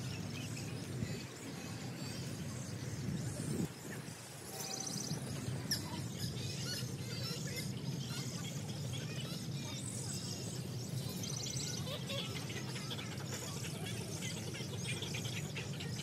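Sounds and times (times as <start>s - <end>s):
small birds chirping: 0.0s - 16.0s
bird trill: 0.1s - 16.0s.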